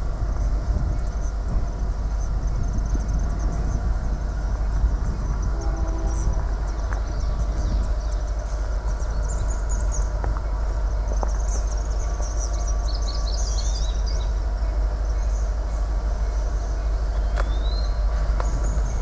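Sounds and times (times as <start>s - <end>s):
diesel locomotive engine rumble: 0.0s - 19.0s
faint high chirping: 2.2s - 19.0s.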